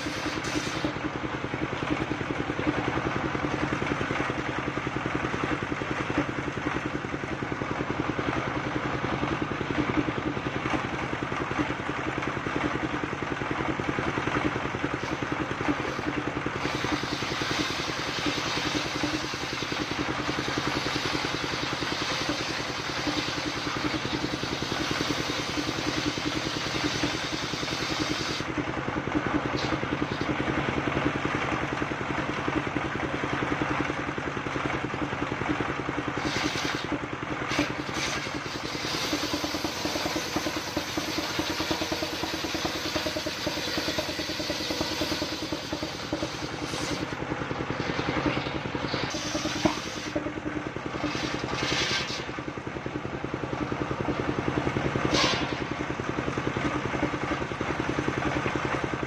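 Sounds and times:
saw blade hissing through wood: 0:00.0 - 0:01.0, 0:36.2 - 0:36.9, 0:55.1 - 0:55.5
diesel engine running: 0:00.0 - 0:59.0.

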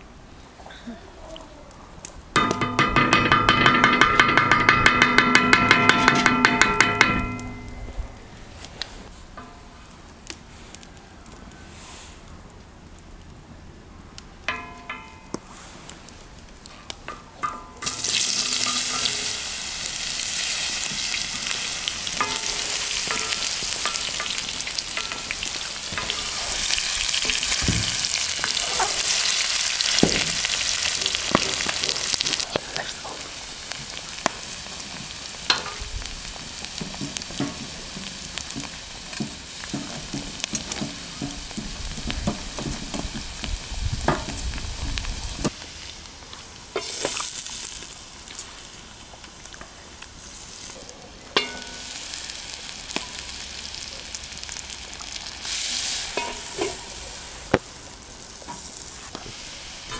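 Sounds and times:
potatoes sizzling in hot oil: 0:17.0 - 0:59.9.

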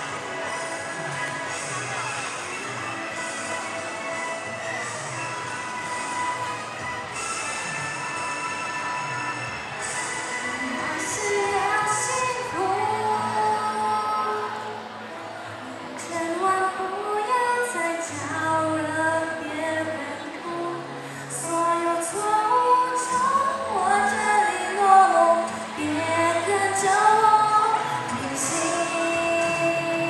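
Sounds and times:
instrumental accompaniment: 0:00.0 - 0:16.7
girl singing into microphone: 0:10.5 - 0:14.9, 0:15.9 - 0:30.0.

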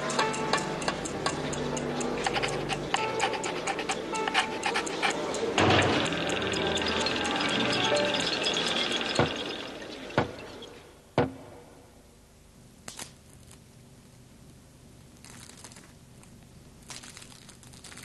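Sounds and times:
loud ringing hits: 0:05.6 - 0:10.8.

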